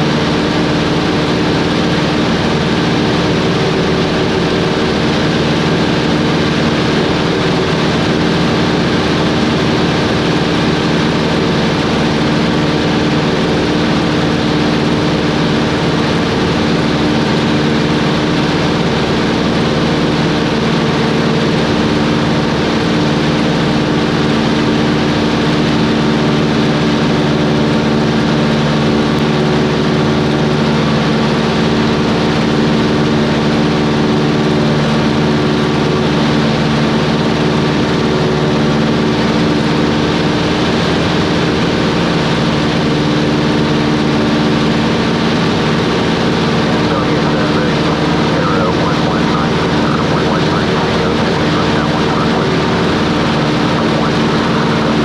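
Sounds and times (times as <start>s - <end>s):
broad rushing noise: 0.0s - 55.0s
propeller plane engine droning: 0.0s - 55.0s.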